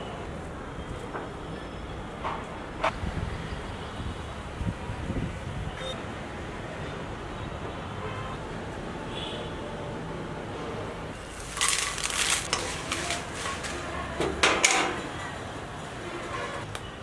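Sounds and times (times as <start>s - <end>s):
kitchen clattering and rustling: 11.3s - 15.3s.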